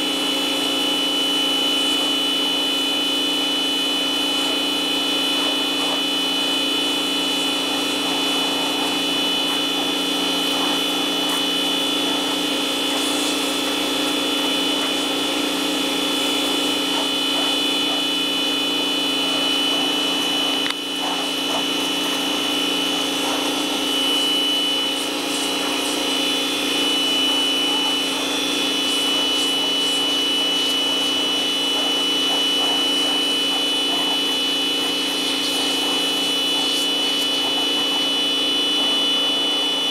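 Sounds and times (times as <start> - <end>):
pressure washer motor whining: 0.0 - 39.9
water jet spraying wood: 0.4 - 39.9.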